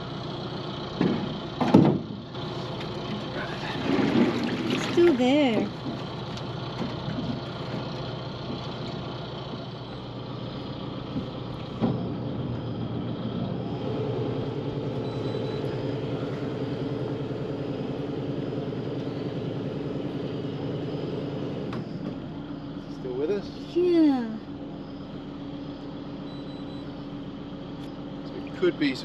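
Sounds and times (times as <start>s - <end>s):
boat engine running: 0.0s - 29.0s.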